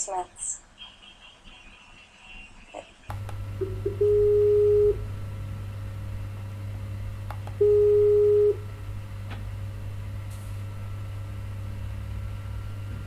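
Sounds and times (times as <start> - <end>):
faint clicks: 3.1 - 4.2, 5.7 - 7.7
video call ringing tone: 3.1 - 5.2, 7.4 - 8.7
steady low hum: 3.1 - 13.0.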